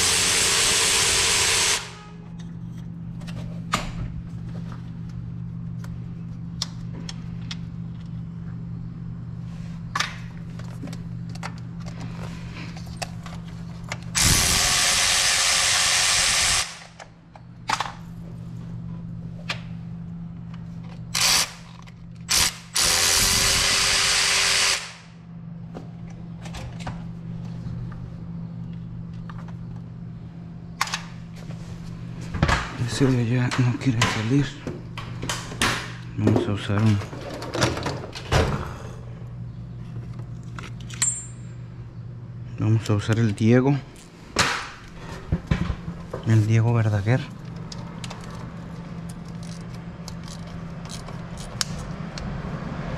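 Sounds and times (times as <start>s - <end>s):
steady low hum: 0.0s - 52.9s
power tool driving socket: 21.1s - 24.9s.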